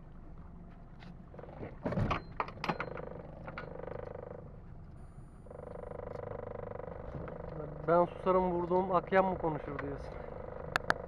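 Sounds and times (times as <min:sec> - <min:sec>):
buzzing drone: 0:02.8 - 0:11.0.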